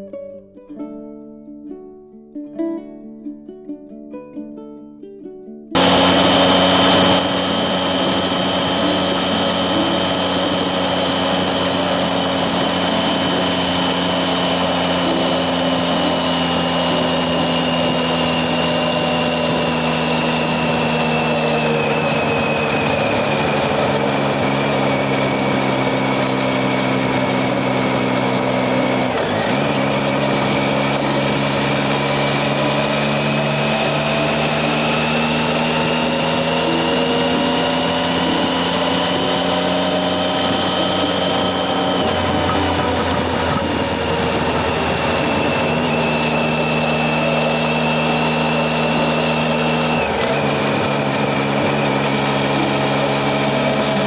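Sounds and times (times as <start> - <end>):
motorcycle engine running: 5.8 - 54.0
wind rush on microphone: 40.0 - 50.4.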